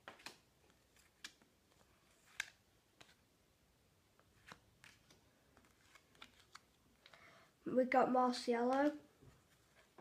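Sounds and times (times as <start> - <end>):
trading cards leafed through: 0.0 - 3.3, 4.2 - 7.2.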